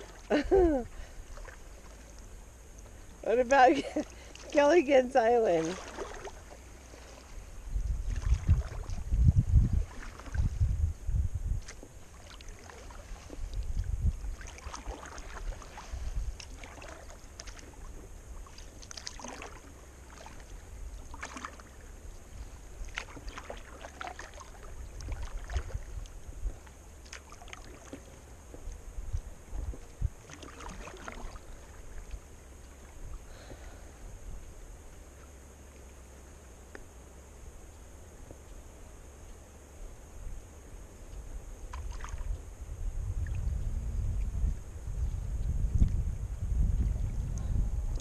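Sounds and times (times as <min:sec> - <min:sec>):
low microphone rumble: 0:00.0 - 0:18.5, 0:28.1 - 0:35.2, 0:37.4 - 0:48.0
paddle splashing in water: 0:00.0 - 0:33.8, 0:41.6 - 0:42.5.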